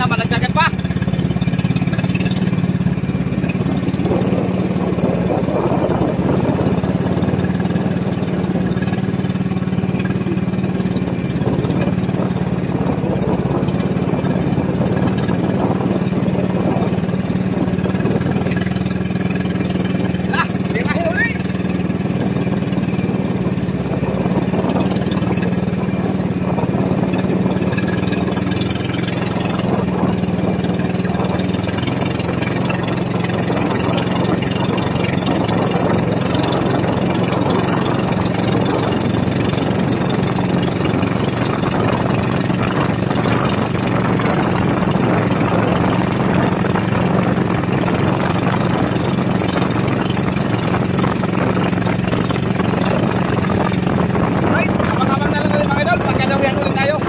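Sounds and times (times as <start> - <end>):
small boat engine running: 0.0 - 57.0.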